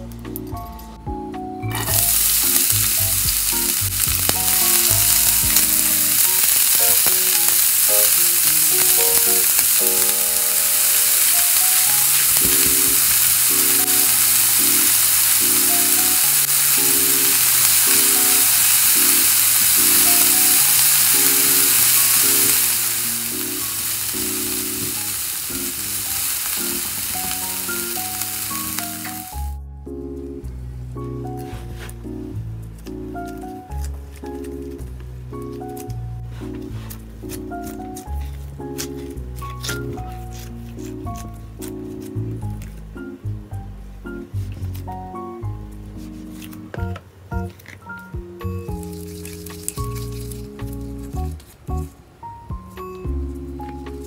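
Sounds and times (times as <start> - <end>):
soft background music: 0.0 - 54.0
vegetables sizzling in oil: 1.7 - 29.6, 48.7 - 51.4.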